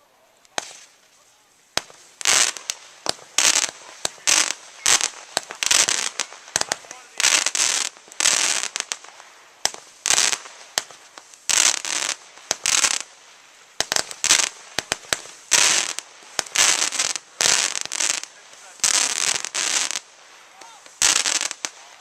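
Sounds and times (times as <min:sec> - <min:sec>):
fireworks hissing and crackling: 0:00.0 - 0:22.0
firework pops: 0:00.5 - 0:13.1, 0:13.8 - 0:22.0.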